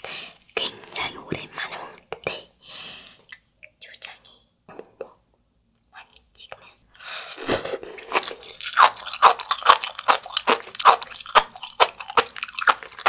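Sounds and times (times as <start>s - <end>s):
chewing wet popping food: 7.9s - 13.0s.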